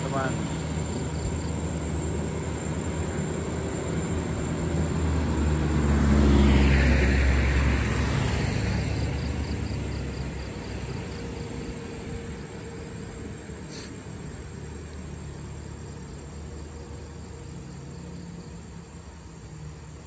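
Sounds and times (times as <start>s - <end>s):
truck engine at low revs: 0.0s - 20.0s
vehicle passing with tyre noise: 0.0s - 20.0s.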